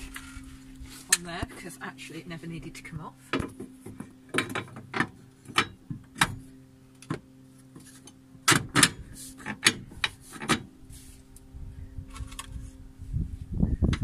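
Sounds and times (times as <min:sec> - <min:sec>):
faint steady hum: 0:00.0 - 0:14.0
metallic clunks and knocks: 0:03.3 - 0:07.2.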